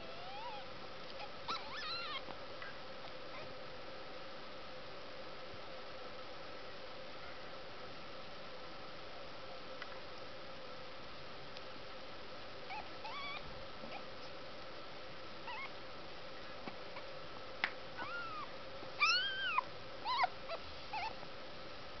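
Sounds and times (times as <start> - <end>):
kittens mewing: 0.0 - 2.8, 18.0 - 21.2.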